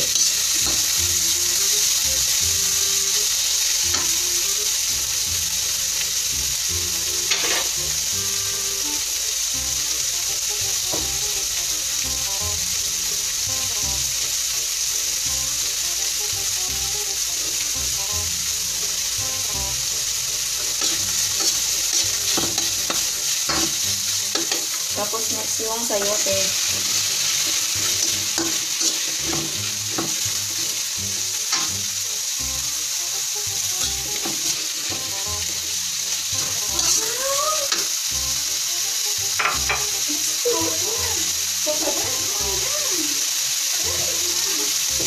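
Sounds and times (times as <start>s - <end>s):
meat sizzling in oil: 0.0s - 45.0s
metal spatula scraping pan: 7.2s - 7.8s, 20.7s - 30.7s.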